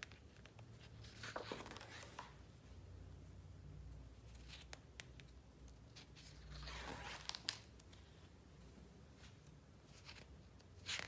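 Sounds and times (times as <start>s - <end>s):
paper page rustling: 0.0s - 2.3s, 6.0s - 7.7s, 9.9s - 11.0s.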